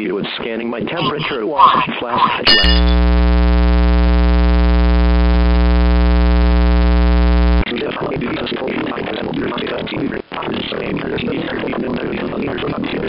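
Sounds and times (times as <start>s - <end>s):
low electronic buzz: 2.5s - 7.6s.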